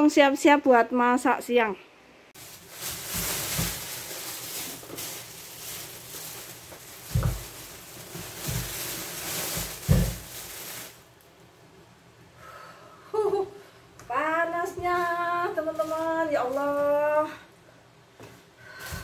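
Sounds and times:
bags thumping on counter: 2.4 - 11.0
plastic bags rustling: 2.4 - 11.2, 14.8 - 17.3.

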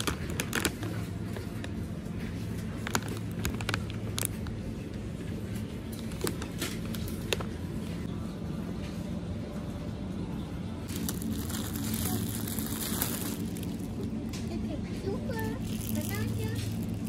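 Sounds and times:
plastic bag crinkling: 0.0 - 1.7, 2.6 - 4.5, 10.9 - 14.3, 15.3 - 17.0
steady low hum: 0.0 - 17.0.

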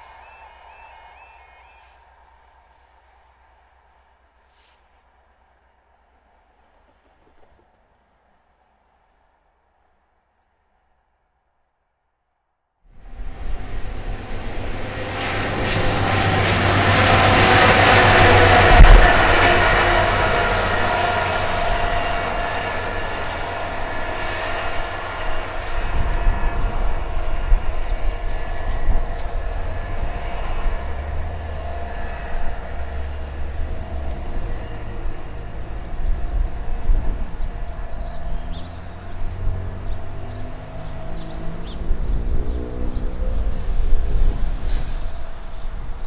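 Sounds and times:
diesel engine moving away: 13.0 - 46.0
steady low rumble: 13.0 - 46.0.

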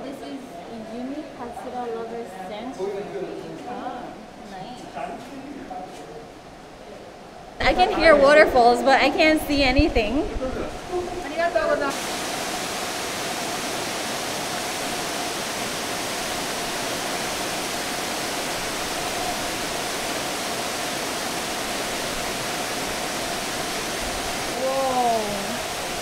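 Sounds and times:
waterfall rushing: 10.7 - 26.0.

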